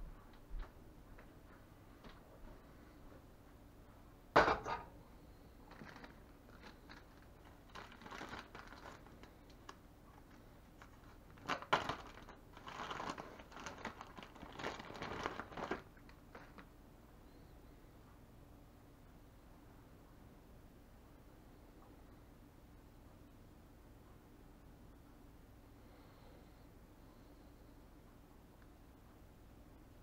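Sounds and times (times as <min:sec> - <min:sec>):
plastic bag crinkling: 0:05.6 - 0:16.7.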